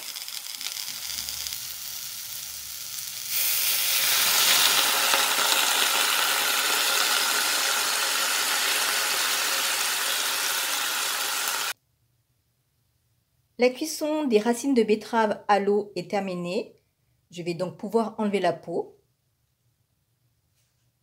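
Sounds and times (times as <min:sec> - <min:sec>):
vegetables sizzling in butter: 0:00.0 - 0:11.8
water steaming in hot pan: 0:00.0 - 0:11.8.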